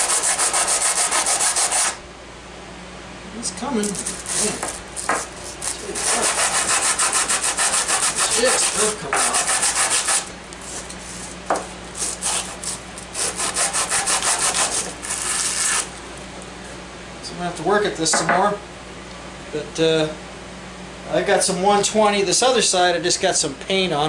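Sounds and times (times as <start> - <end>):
metal part rasping on sandpaper: 5.4 - 11.3, 12.0 - 15.8.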